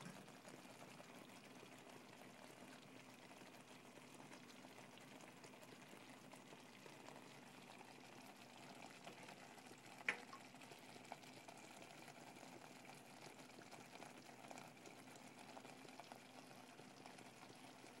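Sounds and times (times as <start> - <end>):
food bubbling on stovetop: 0.0 - 18.0.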